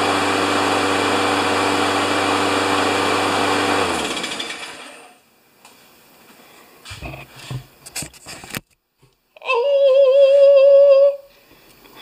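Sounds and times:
lawn mower engine running: 0:00.0 - 0:05.2
mower engine winding down: 0:00.0 - 0:05.2.

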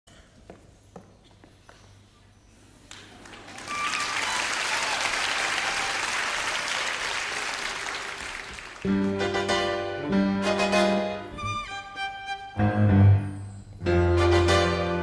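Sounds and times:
audience applauding: 0:02.9 - 0:09.5.

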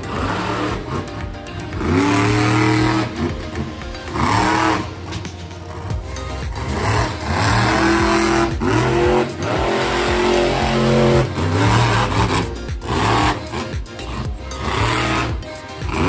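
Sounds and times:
monster truck engine revving: 0:00.0 - 0:16.0.

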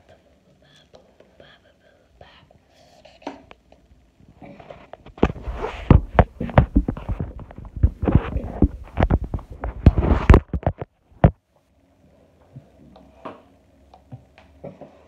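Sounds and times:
phone handling knocks and rustling: 0:05.1 - 0:11.4.

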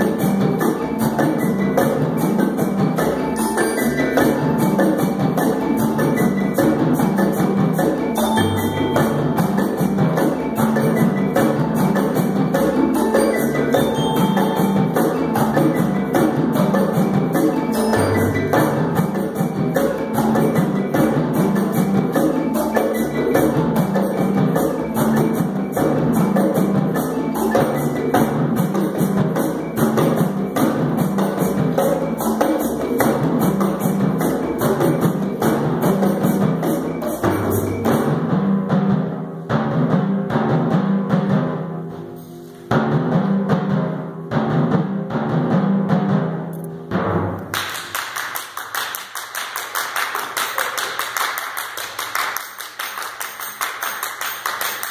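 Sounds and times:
percussion ensemble playing: 0:00.0 - 0:54.9
people clapping: 0:47.5 - 0:54.9.

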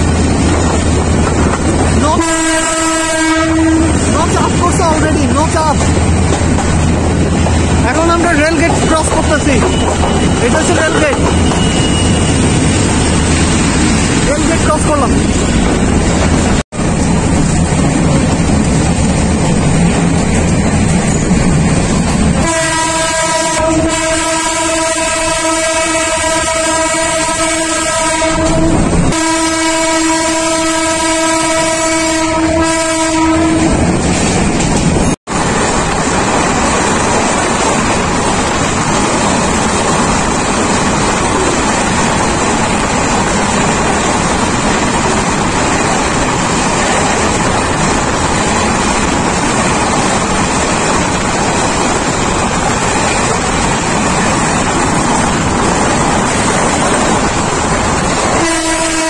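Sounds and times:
train running along track: 0:00.0 - 0:59.0
train horn: 0:02.1 - 0:04.0, 0:22.4 - 0:33.8, 0:58.4 - 0:59.0.

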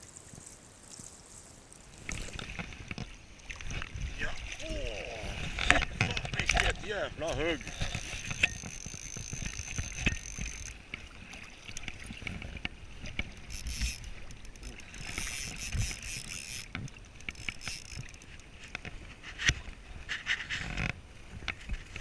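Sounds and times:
flowing river: 0:00.0 - 0:22.0
wind buffeting microphone: 0:03.6 - 0:10.6
fishing reel drag buzzing: 0:07.4 - 0:10.8, 0:13.1 - 0:18.5.

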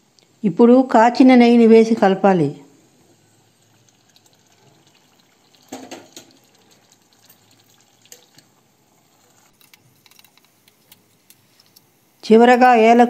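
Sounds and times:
ghee pouring: 0:02.9 - 0:12.2
spoon stirring and clicking on pot: 0:05.6 - 0:08.5.

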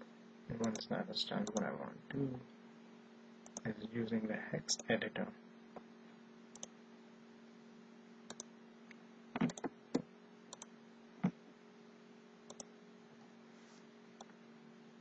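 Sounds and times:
low electrical hum: 0:00.0 - 0:15.0
computer mouse clicks: 0:00.6 - 0:00.8, 0:01.4 - 0:01.6, 0:06.5 - 0:06.7, 0:08.3 - 0:08.5, 0:09.4 - 0:09.7, 0:10.5 - 0:11.4, 0:12.5 - 0:12.7.

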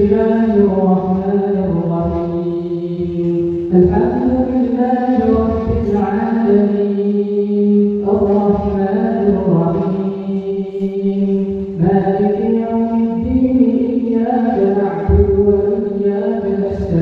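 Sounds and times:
man reciting melodically: 0:00.0 - 0:17.0.

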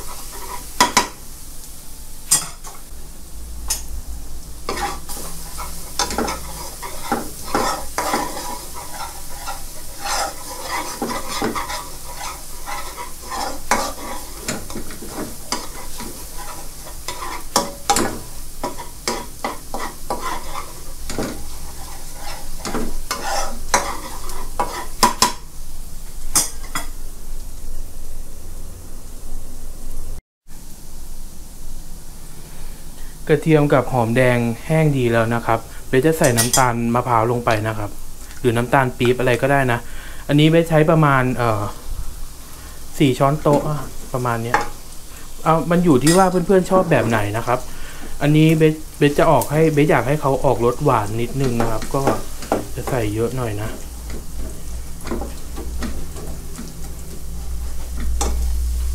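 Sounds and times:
metal ladle scraping a wok: 0:00.0 - 0:01.1, 0:04.6 - 0:25.4
faint sizzle: 0:00.0 - 0:58.9.

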